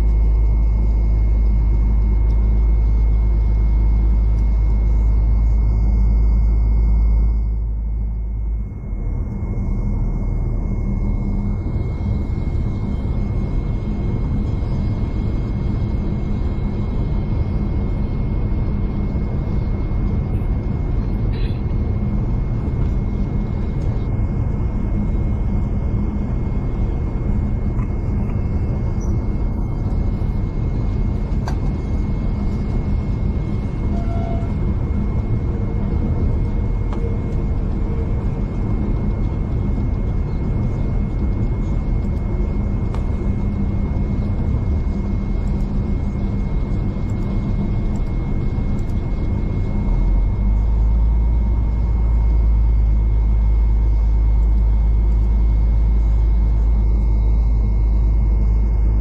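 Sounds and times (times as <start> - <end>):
high whine: 0.0 - 59.0
passenger train rumbling: 26.3 - 56.6.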